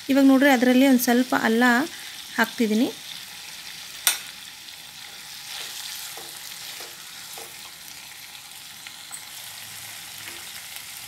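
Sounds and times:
vegetables sizzling in a pan: 0:00.0 - 0:11.0
spatula stirring: 0:05.0 - 0:08.0
spatula taps: 0:05.5 - 0:07.7.

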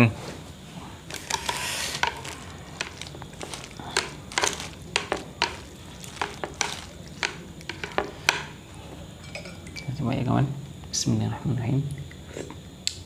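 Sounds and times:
chopsticks clicking against a plate: 0:01.1 - 0:08.6.

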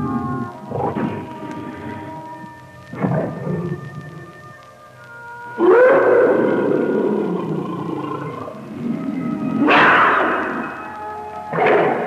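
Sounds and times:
organ-like chord droning: 0:00.0 - 0:12.0
roar-like outbursts: 0:05.6 - 0:10.7.

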